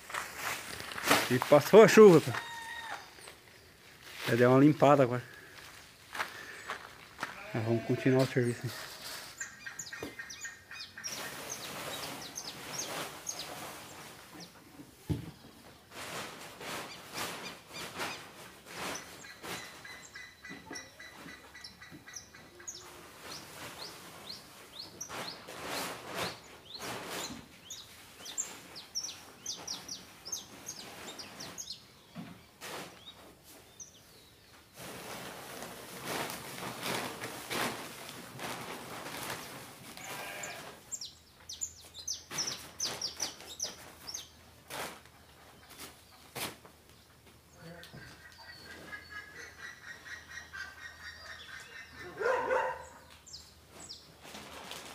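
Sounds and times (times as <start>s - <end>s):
material tipped onto plastic tarp: 0.2s - 1.6s
small birds chirping: 9.1s - 15.8s, 16.7s - 37.0s, 38.4s - 54.4s.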